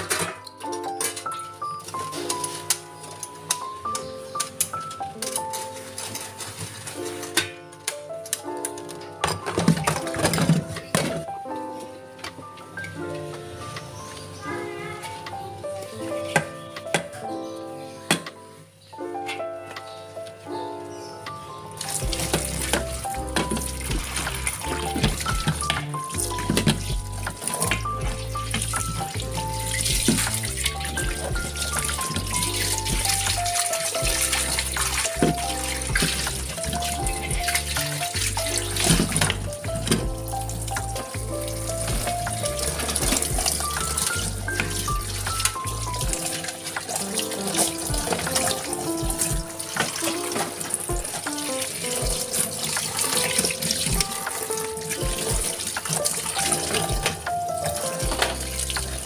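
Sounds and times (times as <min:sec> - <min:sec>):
background music: 0:00.0 - 0:59.0
tap water splashing onto pots: 0:01.9 - 0:07.5, 0:08.2 - 0:11.3, 0:21.8 - 0:59.0.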